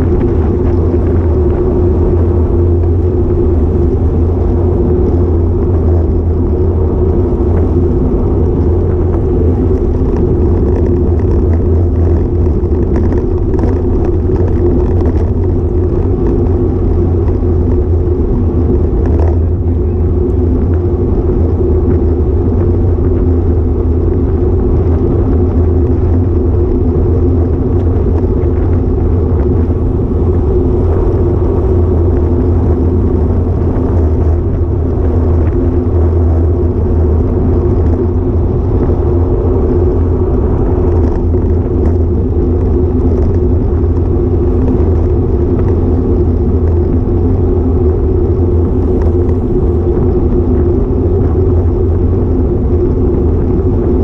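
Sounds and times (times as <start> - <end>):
road vibration: 0.0 - 54.0
wind buffeting: 0.0 - 54.0.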